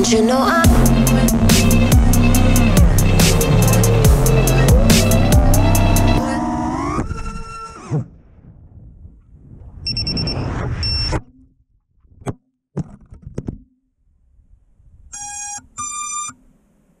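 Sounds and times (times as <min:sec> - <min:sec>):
drone crashing knocks: 0:00.6 - 0:06.2
drone motors whirring: 0:00.6 - 0:08.1
short electronic beeps: 0:09.9 - 0:11.2, 0:15.2 - 0:16.4.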